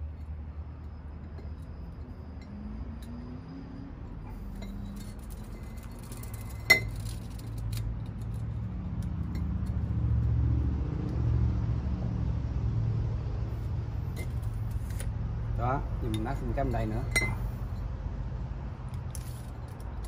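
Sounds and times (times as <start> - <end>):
tool clinking on glass bottle: 4.5 - 7.2, 17.0 - 17.5.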